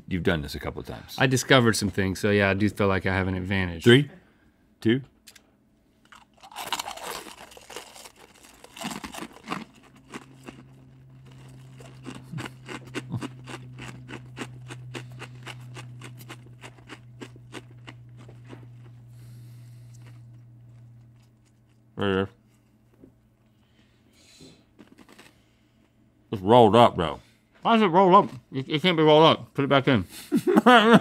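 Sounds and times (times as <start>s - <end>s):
low steady hum: 0.0s - 31.0s
cookies crunching while chewed: 6.0s - 21.9s, 24.6s - 26.0s.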